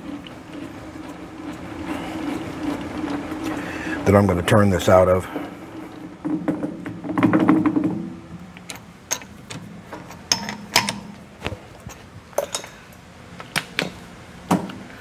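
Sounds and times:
sharp metal clicks and clanks: 8.6 - 11.2.

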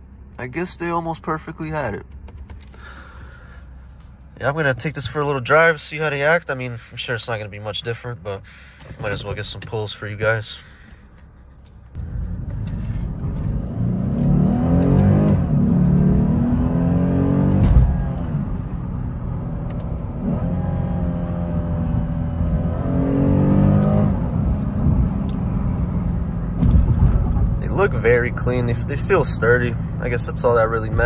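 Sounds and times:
car engine accelerating: 11.9 - 31.0.

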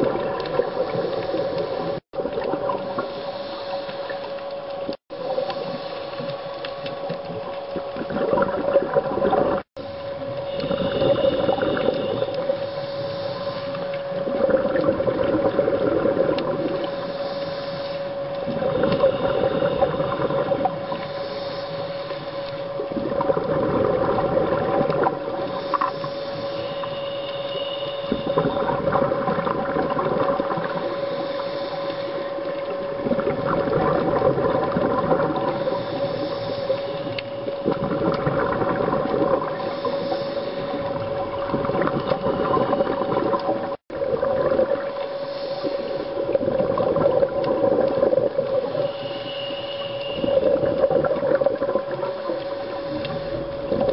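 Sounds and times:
steady hum: 0.0 - 53.9
scuba regulator inhale hiss: 2.9 - 4.3, 10.5 - 13.9, 16.8 - 22.5, 25.4 - 28.6, 30.8 - 32.4, 35.4 - 37.5, 39.5 - 41.0, 45.1 - 46.4, 48.6 - 50.6, 52.2 - 53.6
exhaust bubbles rushing: 14.2 - 16.8, 22.9 - 25.2, 37.7 - 39.6, 41.4 - 45.0, 46.3 - 48.7.

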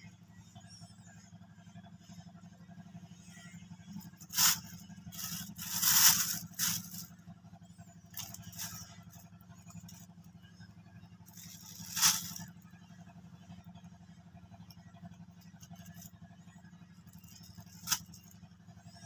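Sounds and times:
steady low hum: 0.0 - 19.0
plastic bag crinkling: 4.3 - 7.1.

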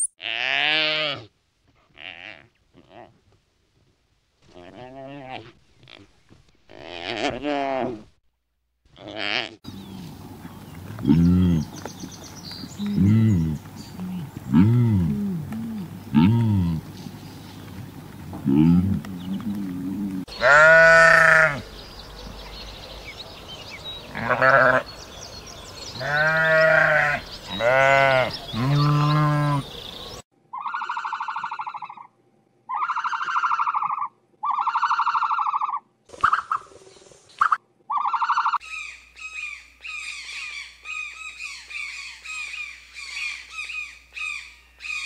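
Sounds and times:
sheep bleating: 0.2 - 1.3, 18.4 - 21.6, 24.1 - 24.9, 26.0 - 29.7
bird squawking: 30.5 - 32.1, 32.7 - 36.7, 37.4 - 45.0.

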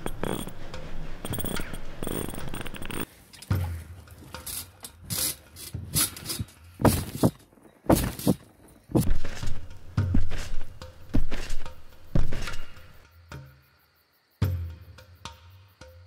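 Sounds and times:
zipper running: 0.0 - 0.6, 1.2 - 3.1
feet thudding on trampoline: 6.8 - 13.0.

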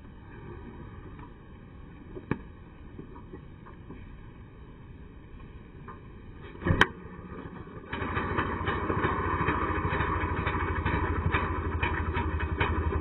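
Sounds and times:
ice auger engine running: 6.7 - 13.0.

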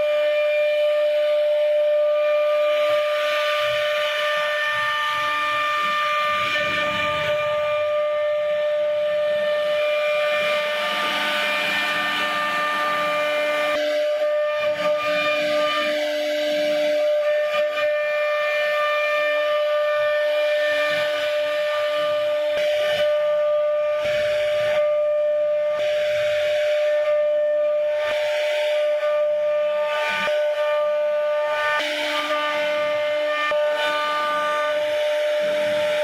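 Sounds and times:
router spindle whine: 0.0 - 36.0.

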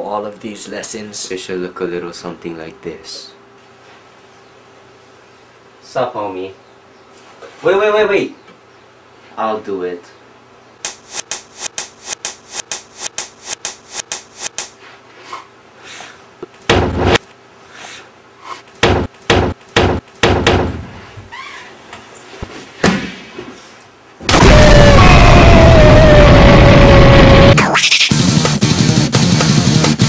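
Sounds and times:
stuttering looped clip: 10.9 - 14.7
blows and slams against door: 18.8 - 20.9
loud explosion blast: 24.3 - 27.6.

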